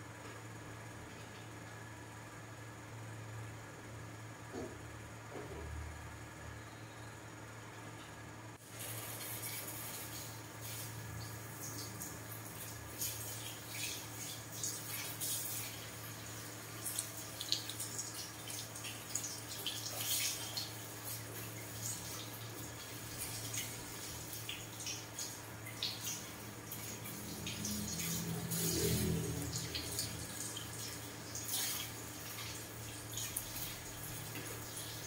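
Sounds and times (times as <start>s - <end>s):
steady low hum: 0.0s - 35.0s
shower sprayer water splashing: 8.6s - 35.0s
water dripping: 16.7s - 28.3s.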